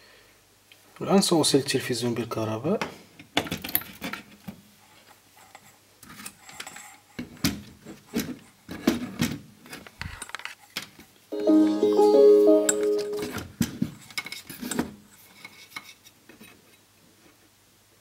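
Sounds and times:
plucked-string background music: 11.4 - 13.5.

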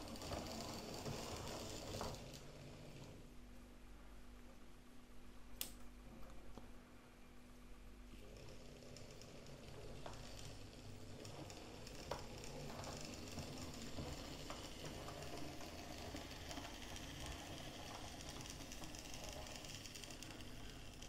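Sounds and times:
model train motor whirring: 0.0 - 3.0, 8.2 - 21.0.

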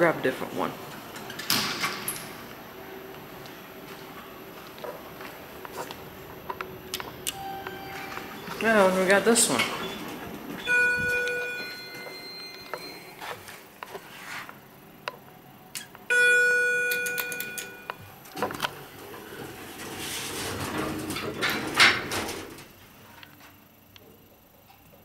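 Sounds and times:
elevator doors sliding closed: 6.0 - 13.2, 18.4 - 22.7
elevator chime dinging: 7.3 - 13.3, 16.1 - 18.0.

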